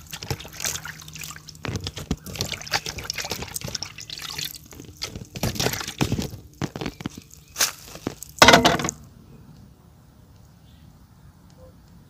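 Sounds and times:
hands squeezing meat in water: 0.0 - 8.4.

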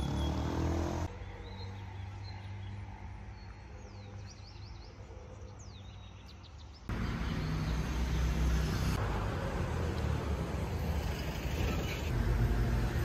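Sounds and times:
street noise: 0.0 - 13.0
low traffic rumble: 6.4 - 13.0.

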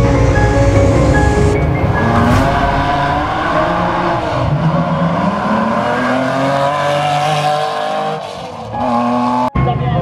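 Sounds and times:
race car accelerating: 0.3 - 9.5.

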